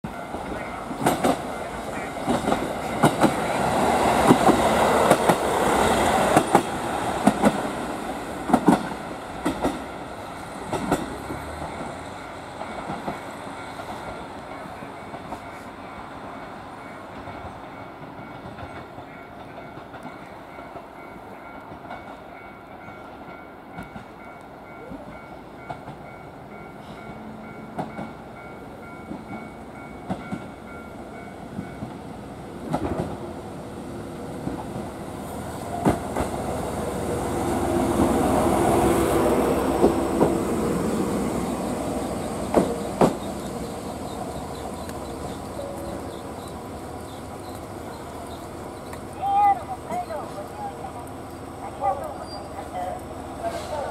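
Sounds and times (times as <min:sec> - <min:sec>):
diesel railcar engine running: 0:00.0 - 0:21.6, 0:22.4 - 0:53.9
train wheels clicking over rail joints: 0:00.3 - 0:15.7, 0:32.6 - 0:33.2, 0:35.6 - 0:36.5, 0:37.9 - 0:49.2.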